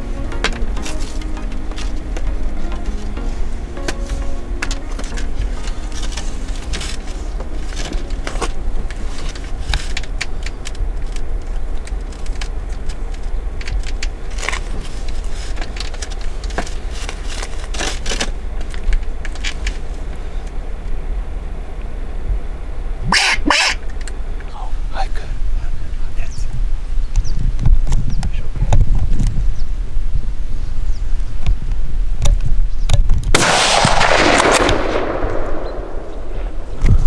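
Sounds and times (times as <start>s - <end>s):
camera handling rumble: 4.6s - 20.5s
clicks and crackles: 4.6s - 20.6s.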